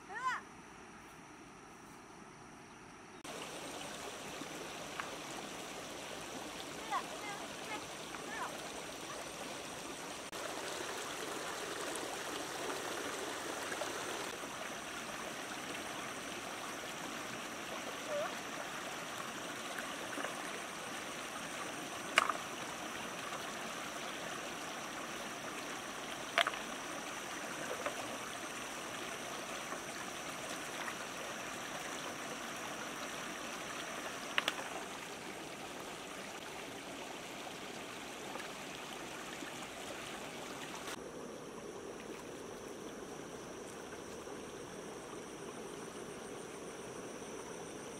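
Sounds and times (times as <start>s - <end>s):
stream trickling over stones: 3.2s - 47.9s
stones knocking: 22.1s - 22.5s.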